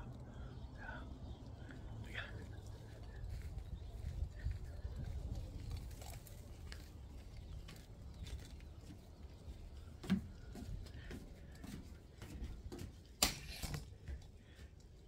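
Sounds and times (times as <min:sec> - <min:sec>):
footsteps on wooden deck: 0:01.6 - 0:15.0.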